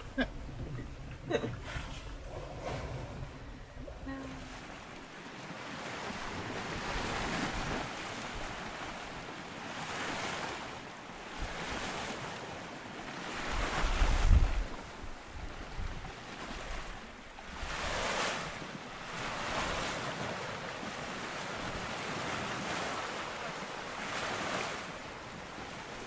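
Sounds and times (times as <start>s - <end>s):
wind buffeting microphone: 0.0s - 9.2s, 13.3s - 18.0s
water rushing past boat hull: 0.0s - 26.0s.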